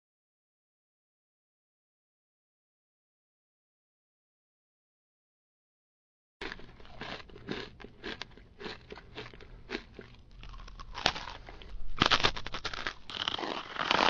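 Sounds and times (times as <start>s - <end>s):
crunching and crackling: 6.4s - 14.0s.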